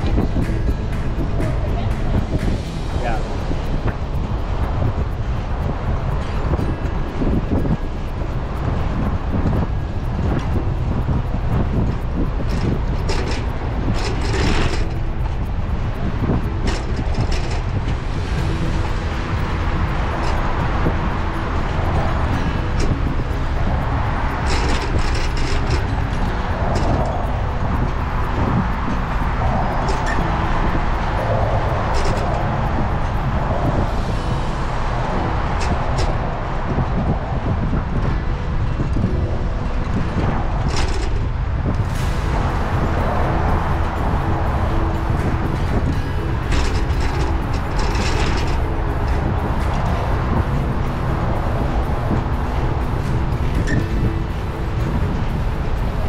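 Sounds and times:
wind buffeting microphone: 0.0 - 56.0
faint clicks and rattles: 3.6 - 33.8, 43.6 - 56.0.

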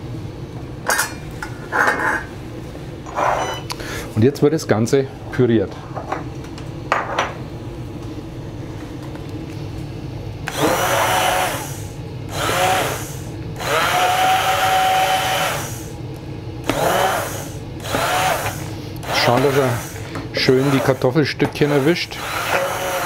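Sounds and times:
immersion blender whirring: 10.5 - 16.0, 16.6 - 23.0.

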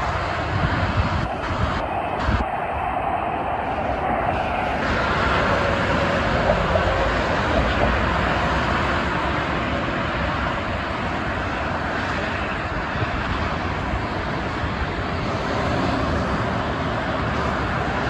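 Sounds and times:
expressway traffic noise: 0.0 - 18.0.

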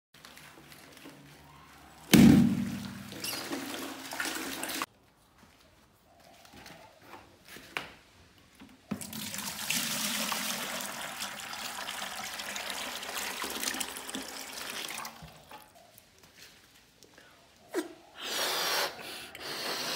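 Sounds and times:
loud sudden thump: 2.1 - 3.1
water pouring into plastic bucket: 2.7 - 4.9, 8.9 - 15.5.

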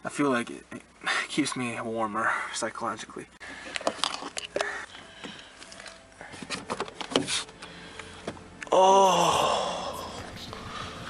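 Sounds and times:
person groaning: 8.7 - 10.3.

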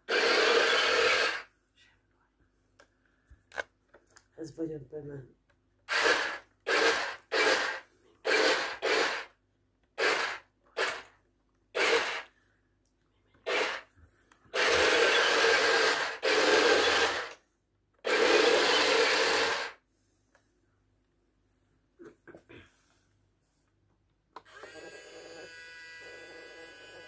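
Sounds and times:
toy tank motors and tracks whirring: 0.0 - 1.5, 5.9 - 12.3, 13.4 - 13.9, 14.5 - 17.4, 18.0 - 19.8, 24.4 - 27.0.

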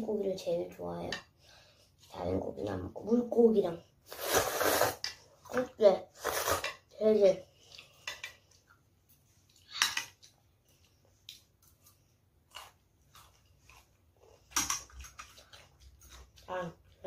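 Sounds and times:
slurping and chewing noodles: 4.0 - 5.2, 6.2 - 6.7, 9.4 - 17.0.

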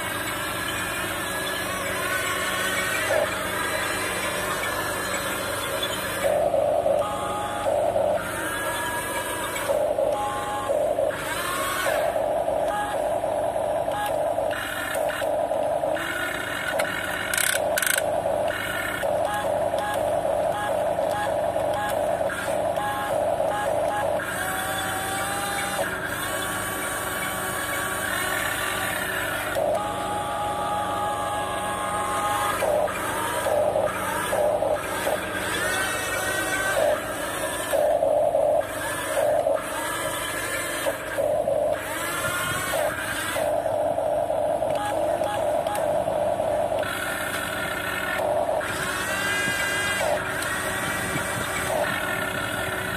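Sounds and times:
electronic beeping: 0.0 - 52.9
toy motors whining: 0.0 - 52.9.

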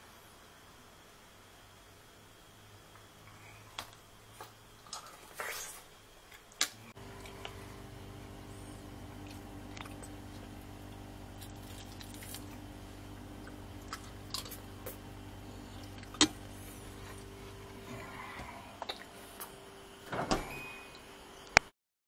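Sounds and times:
refrigerator hum: 0.0 - 21.7
person chewing food: 4.8 - 19.6.

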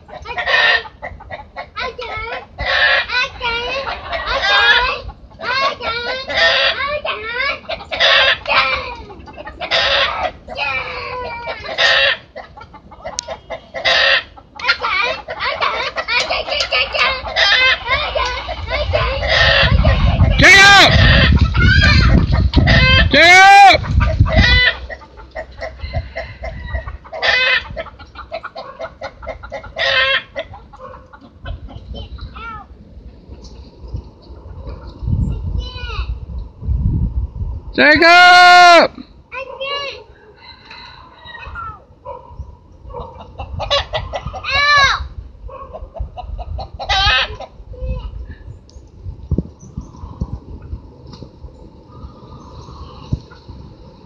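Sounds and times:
chickens clucking and squawking: 0.0 - 37.1, 39.0 - 54.0.

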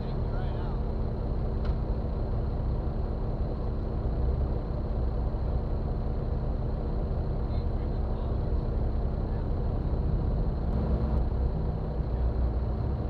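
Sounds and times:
engine idling low rumble: 0.0 - 13.0.

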